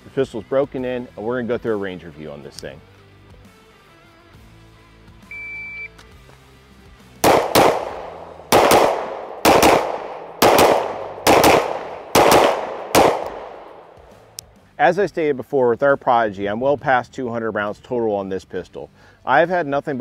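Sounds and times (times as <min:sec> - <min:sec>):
pistol shots with echo: 0:07.2 - 0:14.2.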